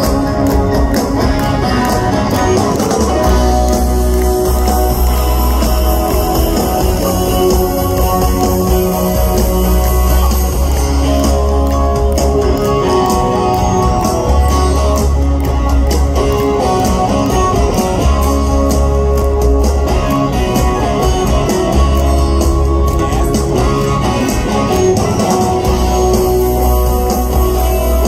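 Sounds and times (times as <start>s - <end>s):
deep bass notes: 0.0s - 20.0s
drums: 0.0s - 28.0s
electric guitars: 0.0s - 28.0s.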